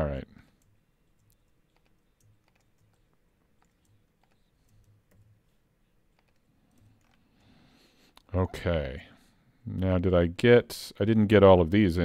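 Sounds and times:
computer mouse and keyboard clicks: 0:00.5 - 0:07.6.

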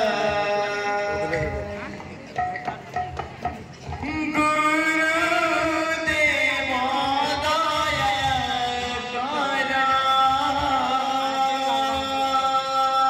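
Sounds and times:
person singing long held line: 0:00.0 - 0:02.7, 0:03.4 - 0:13.0
hand drum strokes: 0:00.0 - 0:04.5.

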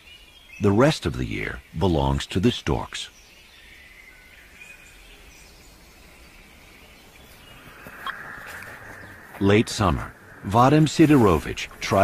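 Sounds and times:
low steady hiss: 0:00.0 - 0:12.0
faint high bird chirps: 0:02.8 - 0:12.0.

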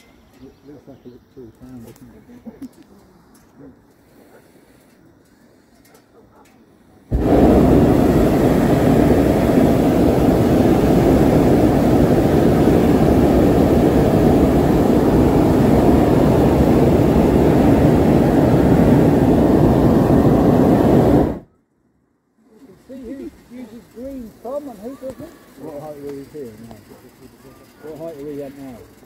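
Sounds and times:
propane burner firing: 0:07.1 - 0:21.5, 0:22.5 - 0:29.0.

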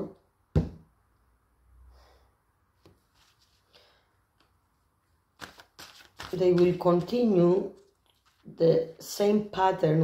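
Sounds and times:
card deck rustle: 0:05.4 - 0:09.1.

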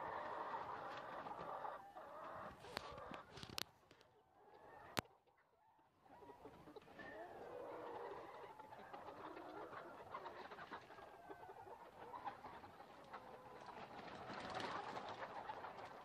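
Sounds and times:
hens clucking: 0:00.0 - 0:16.0.

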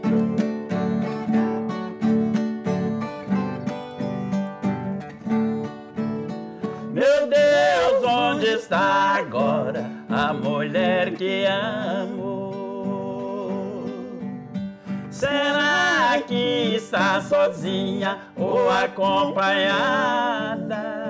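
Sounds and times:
acoustic guitar: 0:00.0 - 0:21.0
twelve-string guitar picking: 0:00.0 - 0:21.0
man singing: 0:06.9 - 0:21.0.

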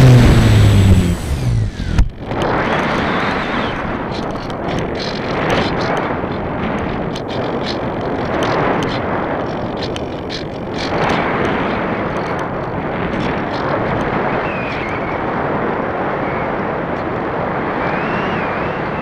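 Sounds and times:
wind rushing over microphone: 0:00.0 - 0:19.0
faint ticks: 0:04.1 - 0:14.2.

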